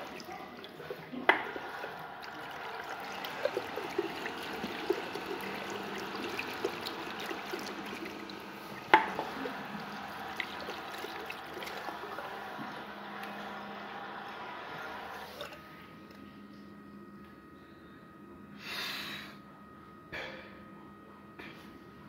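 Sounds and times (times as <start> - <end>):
tap water running into basin: 0.0 - 15.6.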